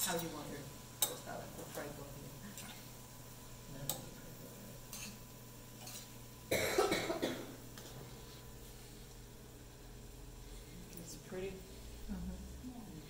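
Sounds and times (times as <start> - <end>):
person coughing: 6.5 - 7.6.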